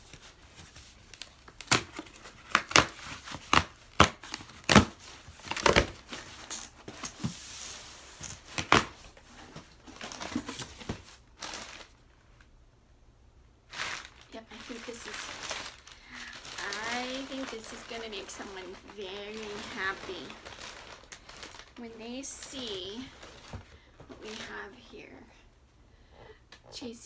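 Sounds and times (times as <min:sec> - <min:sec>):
packing paper crinkling: 0:09.8 - 0:12.0, 0:13.7 - 0:21.9, 0:22.6 - 0:23.7.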